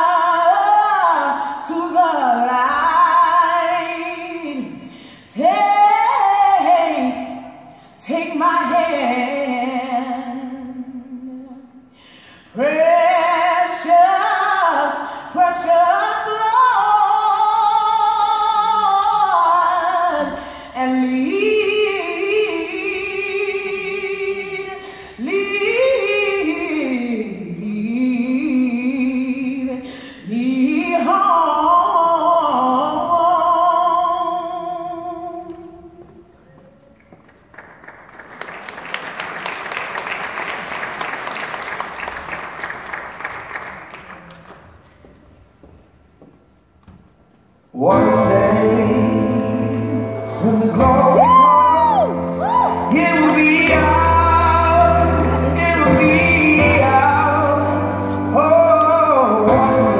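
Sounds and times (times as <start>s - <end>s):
gospel choir singing: 47.8s - 59.9s.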